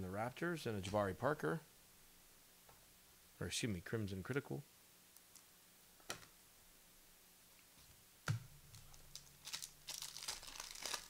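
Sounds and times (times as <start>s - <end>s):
wrapper crinkling and tearing: 8.7s - 11.0s.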